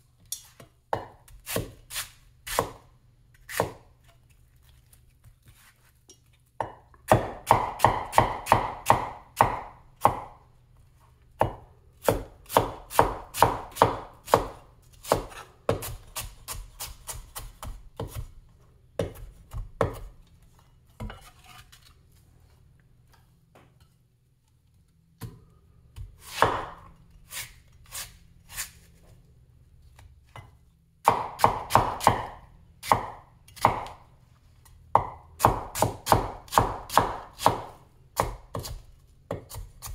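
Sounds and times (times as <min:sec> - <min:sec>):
cleaver chopping on wooden board: 0:06.6 - 0:10.3, 0:31.0 - 0:34.0, 0:35.0 - 0:39.9.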